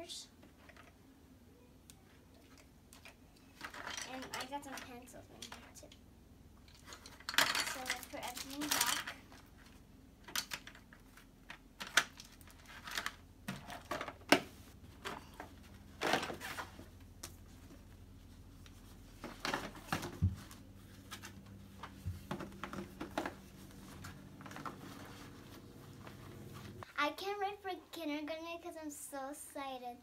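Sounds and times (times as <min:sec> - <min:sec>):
rustling and soft knocks: 0:12.5 - 0:26.9.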